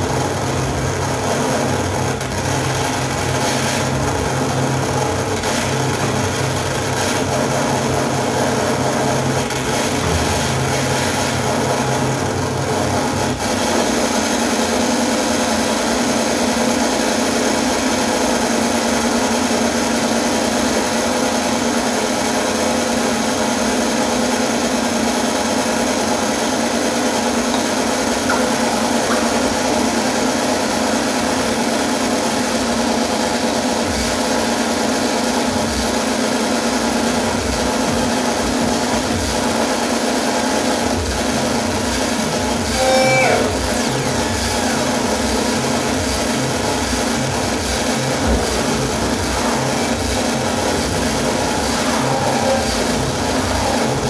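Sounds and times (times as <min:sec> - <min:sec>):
grinding noise wall: 0:00.0 - 0:54.0
held tones: 0:27.5 - 0:31.7
low hum: 0:40.4 - 0:54.0.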